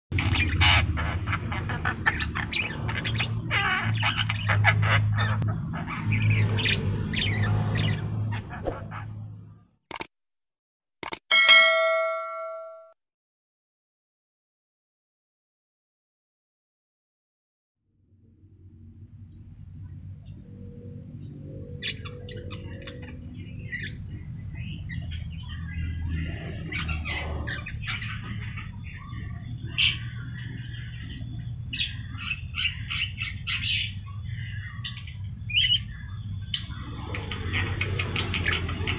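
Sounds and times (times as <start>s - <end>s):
myna bird chirping: 0.1s - 9.2s, 21.2s - 38.9s.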